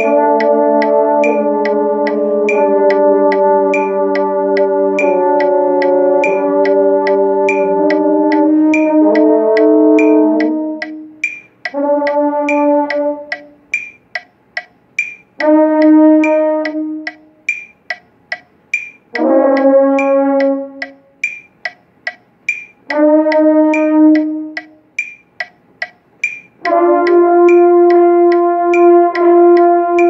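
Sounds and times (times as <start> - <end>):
french horn held notes: 0.0 - 13.5
metronome clicking: 0.0 - 30.0.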